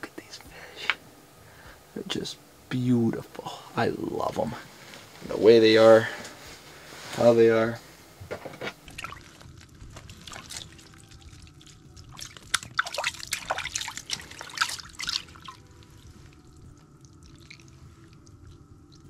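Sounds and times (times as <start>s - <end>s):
water sloshing and splashing: 8.7s - 19.0s.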